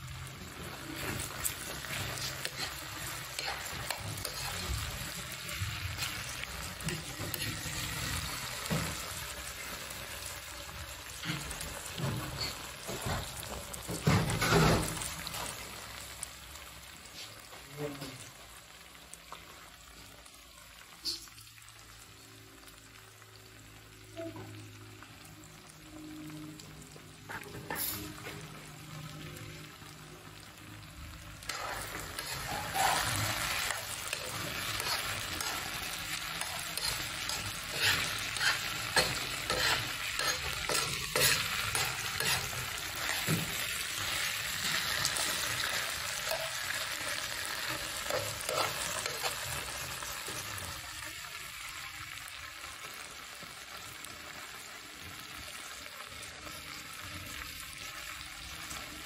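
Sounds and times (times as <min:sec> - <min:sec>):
meat sizzling in oil: 0:00.0 - 0:59.0
spatula scraping on griddle: 0:27.3 - 0:28.4, 0:31.5 - 0:43.6, 0:47.6 - 0:49.6.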